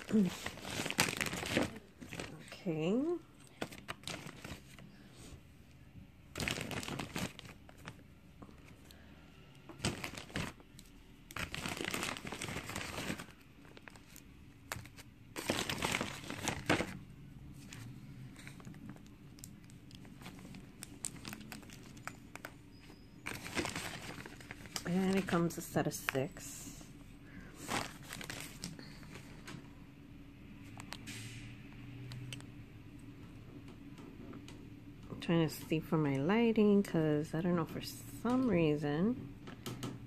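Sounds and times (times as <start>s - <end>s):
packaging crinkling: 0.0s - 2.6s, 3.4s - 4.9s, 6.3s - 9.0s, 9.7s - 17.0s, 17.6s - 26.2s, 27.6s - 29.6s.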